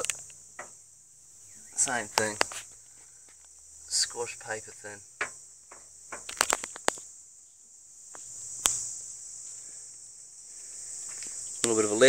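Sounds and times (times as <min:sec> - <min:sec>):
sharp clicks and knocks: 0:00.0 - 0:00.8, 0:05.2 - 0:07.1
crickets chirring: 0:00.0 - 0:12.0.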